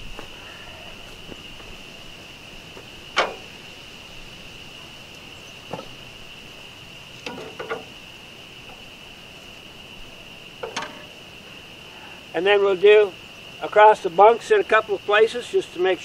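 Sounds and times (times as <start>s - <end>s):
high-pitched insect drone: 0.0s - 16.0s
metal clanks: 3.1s - 3.6s, 7.2s - 8.9s, 10.6s - 11.3s.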